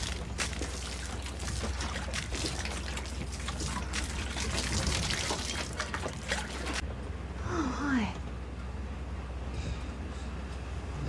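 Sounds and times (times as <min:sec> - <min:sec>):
water trickling and splashing: 0:00.0 - 0:06.8.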